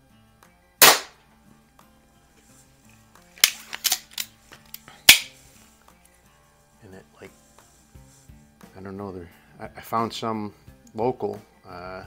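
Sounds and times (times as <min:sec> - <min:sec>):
faint background music: 0:00.0 - 0:12.0
air pistol firing: 0:00.8 - 0:01.2, 0:05.1 - 0:05.3
pistol handling clicks and clacks: 0:03.4 - 0:05.3.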